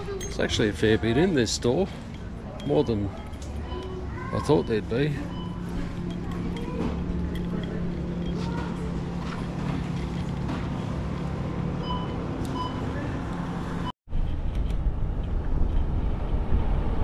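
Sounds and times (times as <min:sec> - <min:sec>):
vehicle rumble: 0:00.0 - 0:17.0
wind noise: 0:14.2 - 0:17.0.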